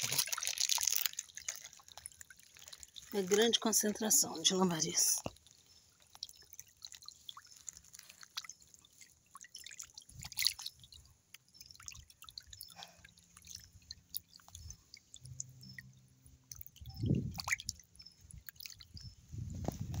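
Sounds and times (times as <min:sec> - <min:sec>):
small fish splashing: 0:00.0 - 0:19.1.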